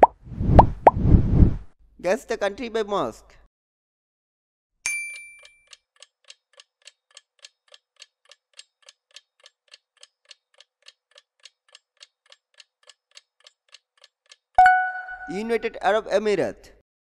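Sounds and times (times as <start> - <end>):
faint clock ticking: 5.7 - 14.6.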